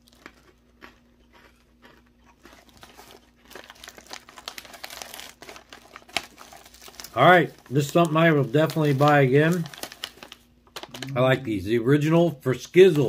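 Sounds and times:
faint steady hum: 0:00.0 - 0:13.0
plastic pouch crinkling: 0:02.4 - 0:11.4.

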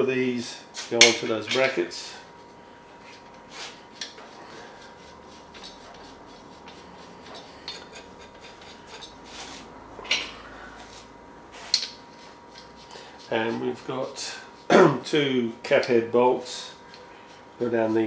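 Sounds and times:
metal nuts clicking and rubbing: 0:05.5 - 0:09.2.

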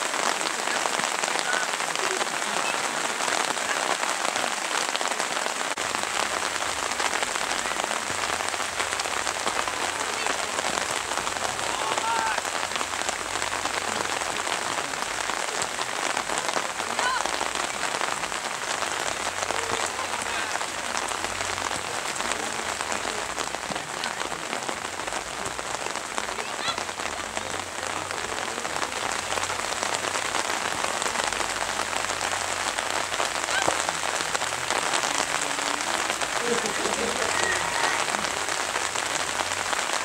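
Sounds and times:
rain pattering: 0:00.0 - 0:40.0.

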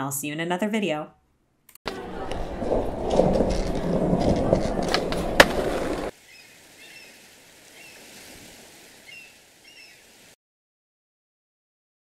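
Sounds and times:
skateboard clack: 0:01.9 - 0:06.1
skateboard rolling: 0:01.9 - 0:06.2.

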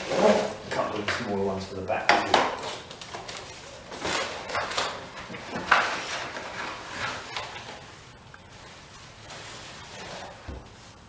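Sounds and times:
cardboard box scraping and rustling: 0:09.1 - 0:11.0.

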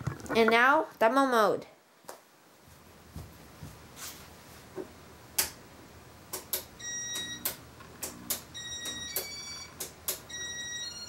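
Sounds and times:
sharp clicks: 0:06.3 - 0:10.3.

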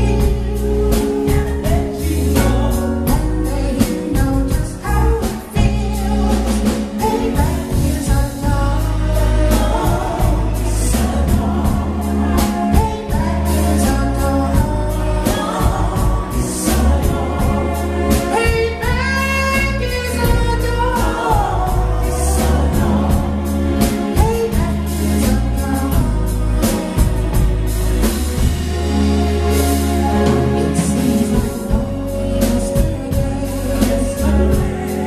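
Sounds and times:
man singing: 0:00.0 - 0:27.4, 0:30.2 - 0:35.0
live band playing: 0:00.0 - 0:35.0
drum beat: 0:09.6 - 0:35.0.

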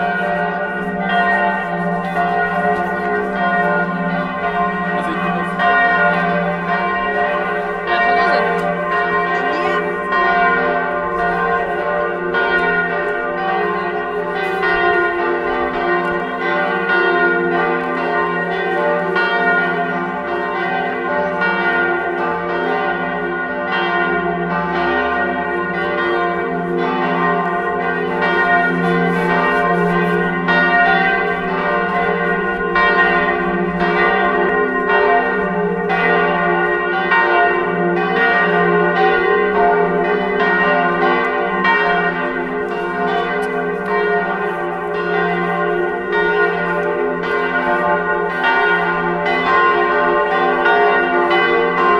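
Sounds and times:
church bells ringing: 0:00.0 - 0:51.9.

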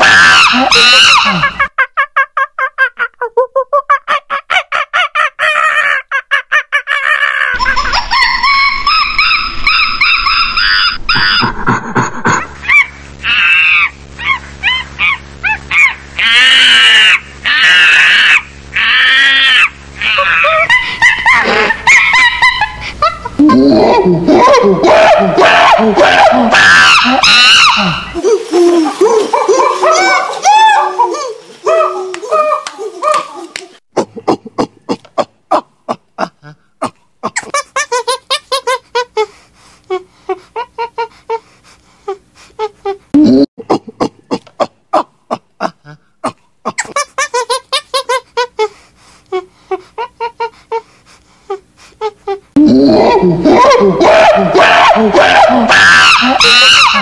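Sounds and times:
monkey calls: 0:00.0 - 0:01.7, 0:03.8 - 0:11.6, 0:12.6 - 0:22.8, 0:23.8 - 0:33.6, 0:53.0 - 0:57.0
monkey screaming: 0:00.0 - 0:01.8, 0:03.8 - 0:11.7, 0:12.4 - 0:33.6, 0:46.7 - 0:48.7, 0:52.8 - 0:57.0
monkey squeaky calls: 0:07.5 - 0:11.5, 0:26.6 - 0:28.0.

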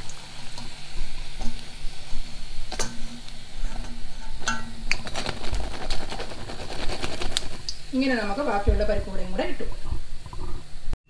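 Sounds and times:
hot oil hissing: 0:00.0 - 0:10.9
wire skimmer clinking on iron pan: 0:02.7 - 0:05.1.

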